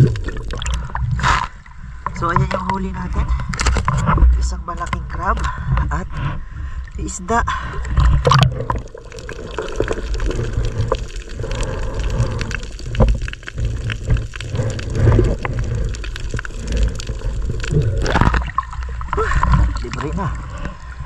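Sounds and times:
muffled water sloshing and gurgling: 0:00.0 - 0:21.0
small clicks and ticks: 0:07.8 - 0:20.8.

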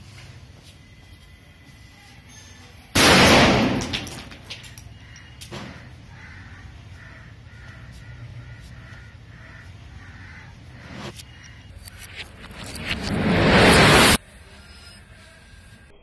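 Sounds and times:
firecracker bang: 0:03.0 - 0:04.4
bird calling: 0:04.8 - 0:12.2.

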